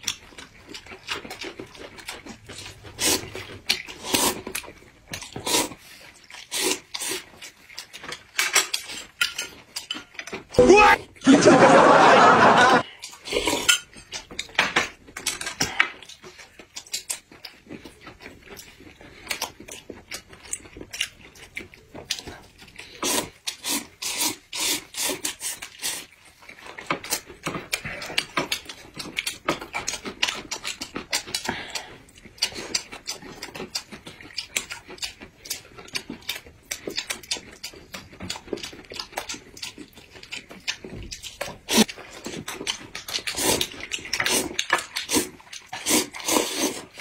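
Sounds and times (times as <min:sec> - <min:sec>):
chewing smacks: 0:00.0 - 0:10.6, 0:12.8 - 0:23.6, 0:24.7 - 0:47.0
noodles being slurped: 0:02.0 - 0:09.5, 0:22.8 - 0:33.9, 0:41.4 - 0:47.0.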